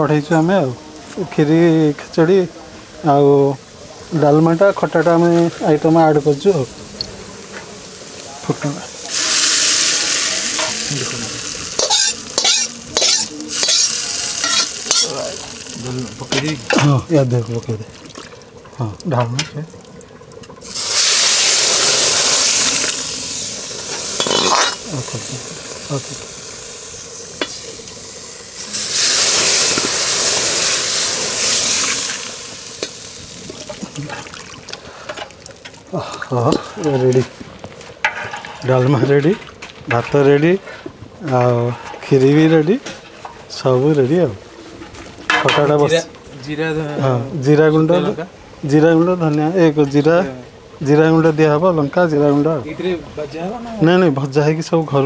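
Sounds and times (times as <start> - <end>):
food sizzling in hot oil: 1.4 - 44.2
metal ladle scraping a pot: 11.7 - 15.1, 23.9 - 24.9, 38.0 - 38.7.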